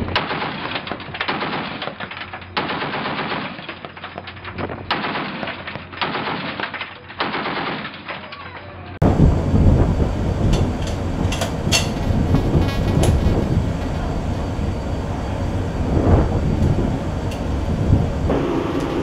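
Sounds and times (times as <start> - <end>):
wind and ship rumble: 8.9 - 19.0.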